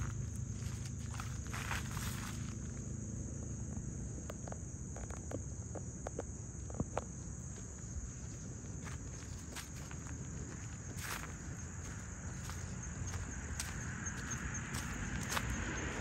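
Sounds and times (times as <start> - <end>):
footsteps crunching on gravel: 0.0 - 2.8, 7.0 - 16.0
high-pitched insect chorus: 0.0 - 16.0.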